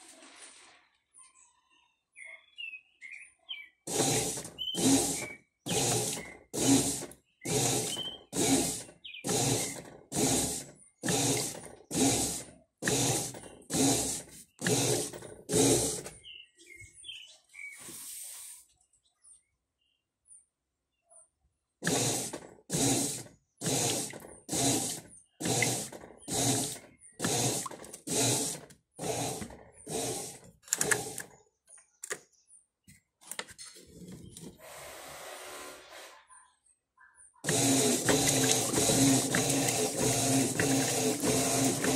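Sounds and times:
washing machine motor churning water: 0:03.9 - 0:16.1, 0:21.8 - 0:31.3, 0:37.4 - 0:41.9
washing machine swishing: 0:03.9 - 0:16.1, 0:21.8 - 0:31.2, 0:37.5 - 0:41.9.

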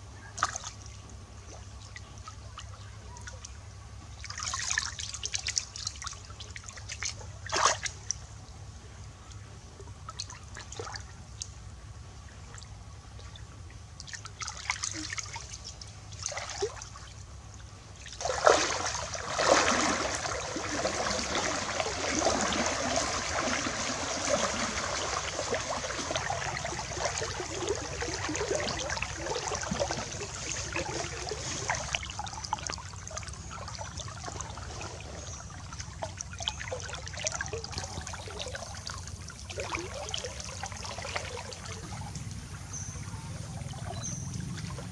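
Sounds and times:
wading through shallow stream: 0:00.0 - 0:08.4, 0:09.1 - 0:44.9
water splashing: 0:04.2 - 0:08.1, 0:14.0 - 0:17.4, 0:18.0 - 0:42.7.

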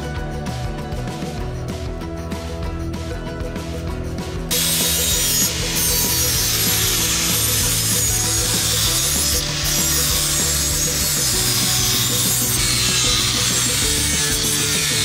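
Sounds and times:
grinder rasping on metal blade: 0:04.5 - 0:15.0.

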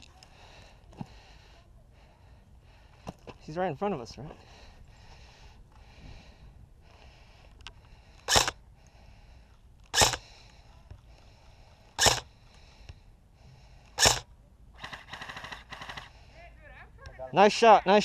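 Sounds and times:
airsoft rifle shots: 0:08.3 - 0:08.6, 0:09.9 - 0:10.3, 0:12.0 - 0:12.3, 0:14.0 - 0:16.1.

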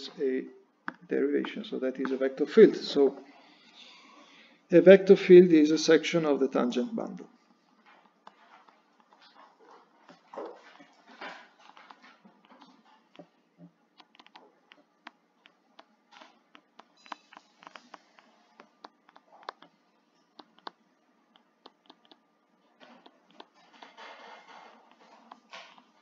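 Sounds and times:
stylus tapping on tablet screen: 0:14.0 - 0:19.7, 0:20.4 - 0:22.2.

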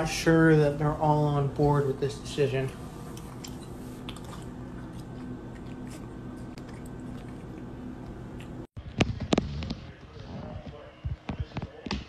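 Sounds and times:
faint steady hum: 0:00.0 - 0:08.8.

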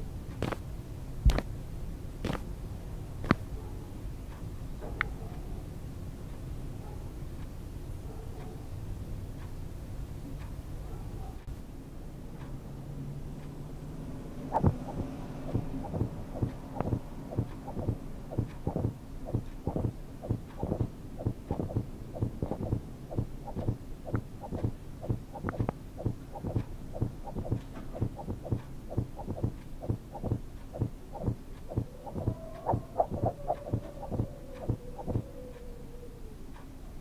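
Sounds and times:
low steady hum: 0:00.0 - 0:37.0
low thumps: 0:14.5 - 0:35.3.

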